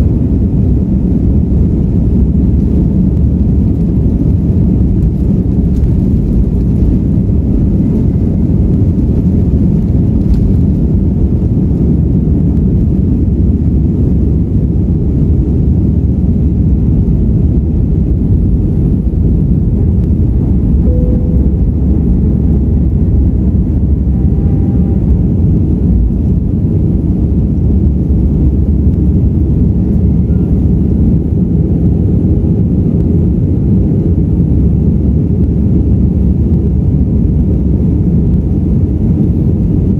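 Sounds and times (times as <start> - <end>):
jet engines rumbling at takeoff: 0.0 - 39.9.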